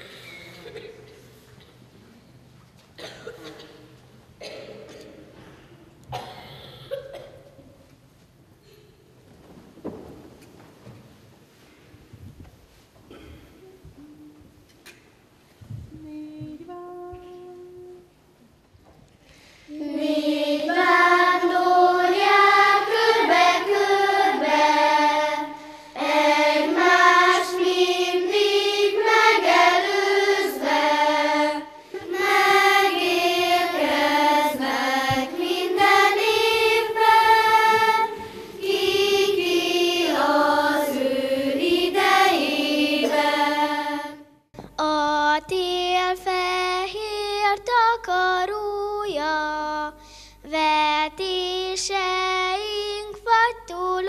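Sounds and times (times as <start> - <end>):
steady low hum: 11.2 - 53.1
child singing: 15.9 - 18.1, 19.8 - 54.0
children's choir singing: 19.7 - 44.4.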